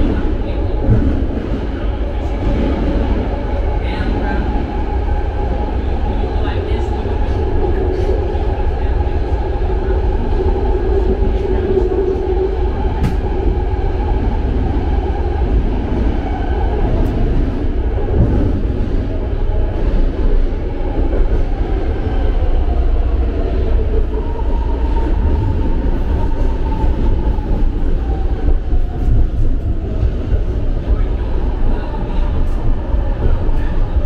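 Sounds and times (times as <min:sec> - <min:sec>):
train wheels rumbling on rail: 0:00.0 - 0:34.0.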